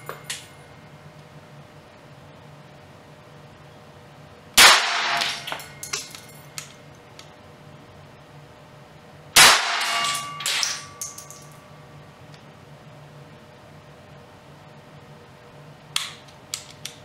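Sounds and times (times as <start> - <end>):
pistol shots: 4.6 - 5.7, 9.4 - 11.0
brass cases clinking on concrete: 5.2 - 6.8, 9.9 - 11.6.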